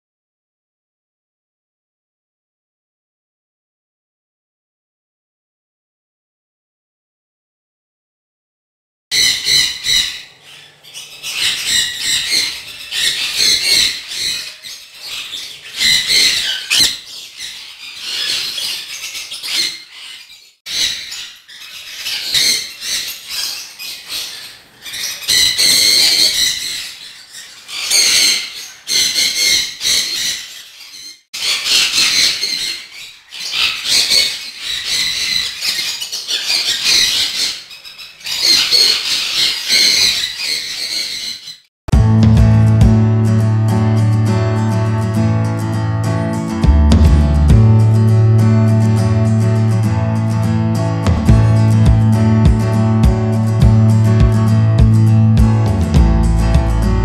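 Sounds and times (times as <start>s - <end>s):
parrots screeching: 9.1s - 41.7s.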